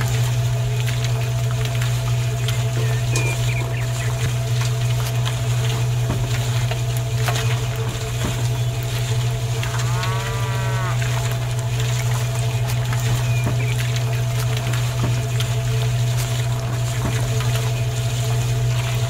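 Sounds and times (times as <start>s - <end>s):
cow moo: 9.5s - 11.7s.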